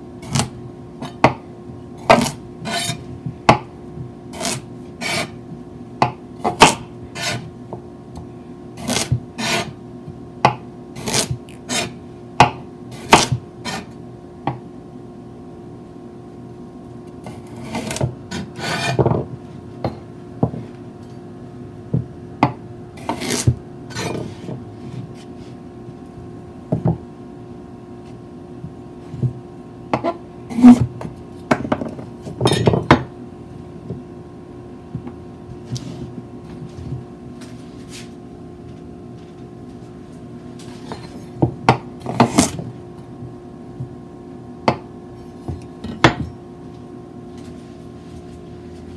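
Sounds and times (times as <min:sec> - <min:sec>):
knife chopping on cutting board: 0:02.0 - 0:03.7, 0:04.4 - 0:05.4, 0:06.0 - 0:07.4, 0:08.8 - 0:09.8, 0:10.4 - 0:13.9, 0:17.3 - 0:19.3, 0:21.9 - 0:24.6.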